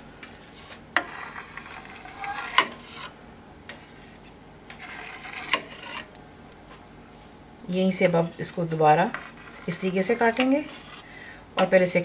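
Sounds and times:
knife scraping metal pot: 0:00.2 - 0:06.1, 0:08.0 - 0:11.1.

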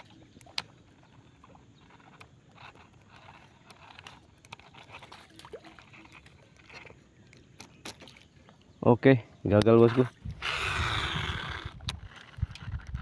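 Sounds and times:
light water sounds: 0:00.0 - 0:09.0
fishing reel clicks: 0:09.5 - 0:13.0.

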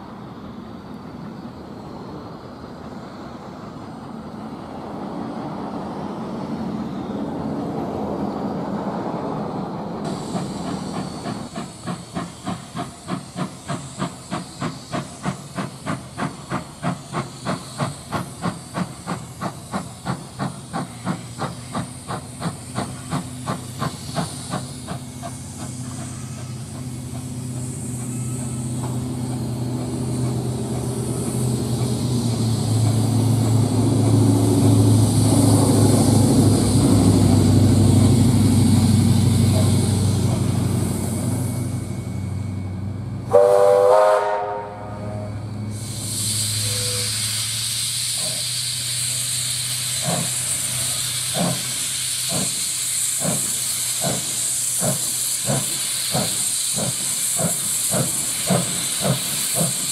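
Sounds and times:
steam locomotive exhaust beats: 0:00.0 - 0:59.9
locomotive wheels rumbling: 0:09.4 - 0:43.3
steam hissing from drain cocks: 0:10.1 - 0:41.6, 0:45.6 - 0:59.9.

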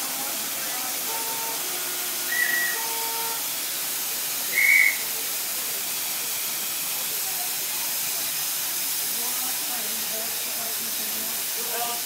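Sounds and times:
steam hissing: 0:00.0 - 0:12.0
steam whistle toots: 0:01.0 - 0:03.5, 0:04.4 - 0:05.1.

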